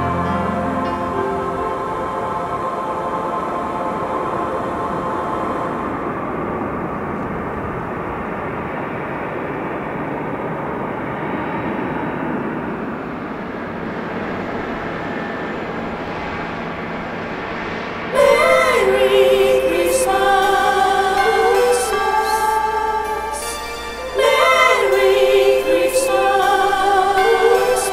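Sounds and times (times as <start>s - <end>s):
choir music: 0.0s - 7.2s, 18.1s - 27.9s
jet engine noise: 0.8s - 19.1s.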